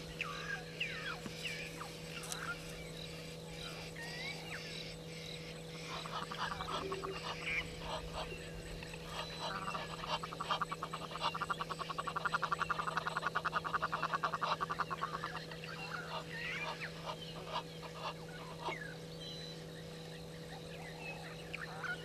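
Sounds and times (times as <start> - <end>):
geese honking: 5.7 - 19.0, 21.1 - 22.0.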